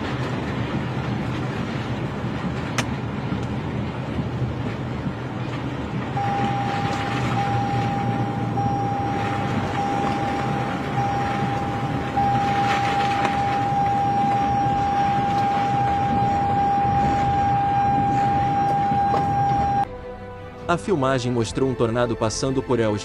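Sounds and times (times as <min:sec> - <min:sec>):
wind rushing against microphone: 0:00.0 - 0:19.9
steady high-pitched tone: 0:06.2 - 0:19.9.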